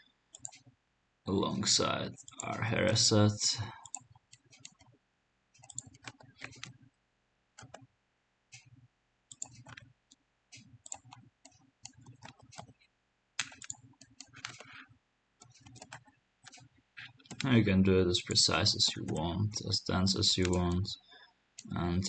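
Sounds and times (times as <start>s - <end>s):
computer mouse clicks: 0.3s - 0.7s, 3.8s - 4.9s, 5.6s - 6.8s, 7.6s - 7.9s, 8.5s - 9.9s, 10.5s - 17.5s, 20.3s - 20.8s
keyboard clicks: 5.6s - 6.8s, 7.6s - 7.9s, 9.3s - 9.8s, 10.8s - 17.7s, 18.3s - 20.9s.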